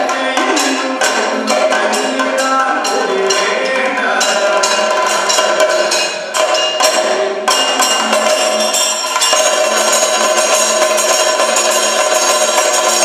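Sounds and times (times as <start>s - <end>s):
drum beaten rapidly with sticks: 0.0s - 13.0s
ringing metal cymbals: 0.0s - 13.0s
gong ringing: 4.2s - 13.0s.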